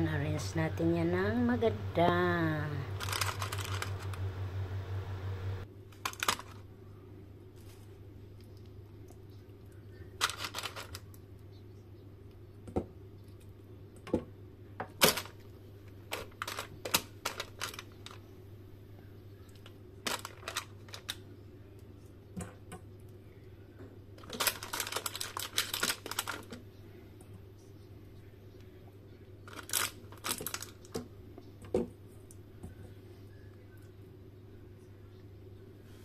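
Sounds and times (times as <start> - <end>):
steady low hum: 0.0 - 5.9
paper liner crinkling: 3.0 - 4.4, 10.2 - 11.0, 20.0 - 21.2, 24.2 - 26.6, 29.5 - 30.9.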